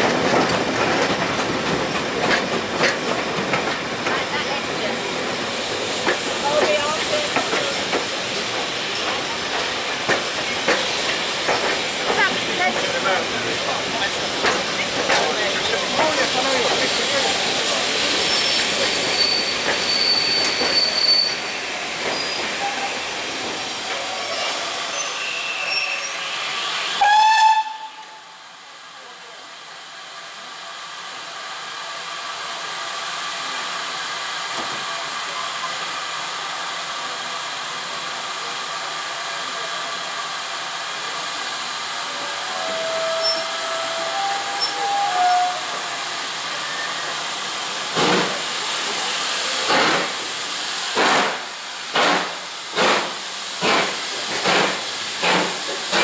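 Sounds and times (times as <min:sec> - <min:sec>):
hiss of steam: 0:00.0 - 0:56.0
steam train noise: 0:00.0 - 0:56.0
loud train whistle blast: 0:27.0 - 0:28.4, 0:42.3 - 0:45.8.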